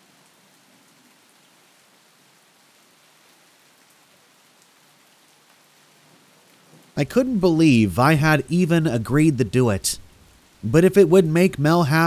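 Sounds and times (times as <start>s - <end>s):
rain hiss: 0.0s - 12.0s
raindrops ticking: 7.0s - 12.0s.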